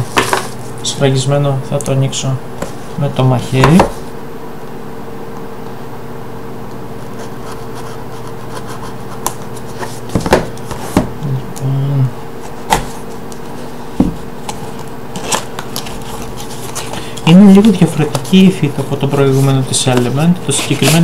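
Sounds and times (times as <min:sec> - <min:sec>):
steady electrical hum: 0:00.0 - 0:21.0
knife cutting cardboard box: 0:20.5 - 0:21.0.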